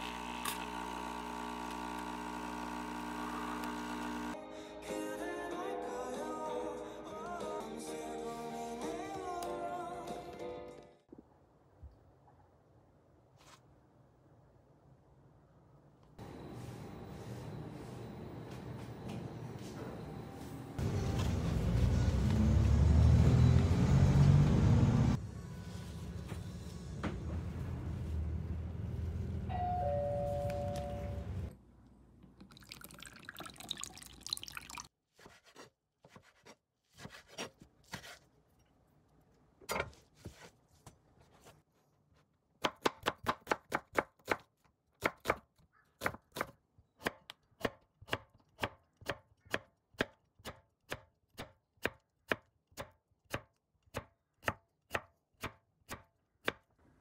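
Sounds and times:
short descending beeps: 29.5 - 31.4.

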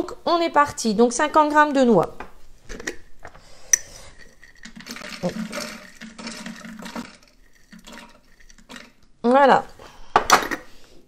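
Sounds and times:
walnuts pouring into a bowl: 3.9 - 9.0.

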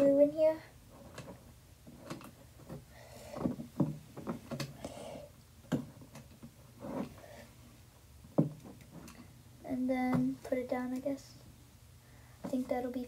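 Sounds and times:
plastic knocking against wood: 3.4 - 4.7, 8.3 - 8.8.

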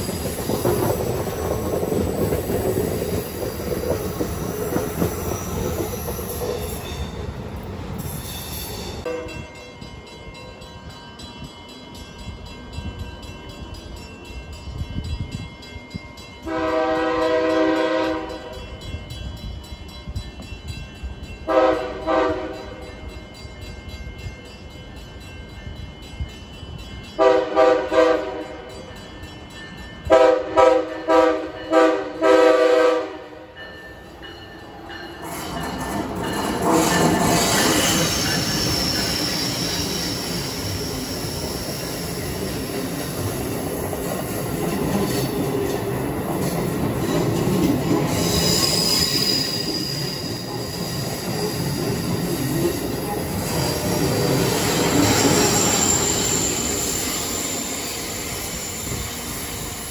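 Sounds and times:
wheel and rail noise: 0.0 - 16.6, 33.2 - 59.9
train horn blasts: 9.1 - 9.5, 16.4 - 18.6, 21.5 - 22.8, 27.2 - 28.7, 30.1 - 33.6
high whining wheel squeal: 37.4 - 42.4, 48.1 - 51.7, 53.0 - 59.9.

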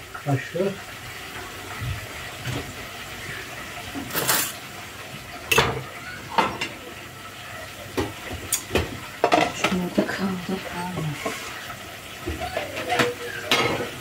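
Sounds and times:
metal utensils clinking on pans: 4.0 - 4.6, 5.5 - 6.8, 8.0 - 11.6, 12.2 - 14.0.

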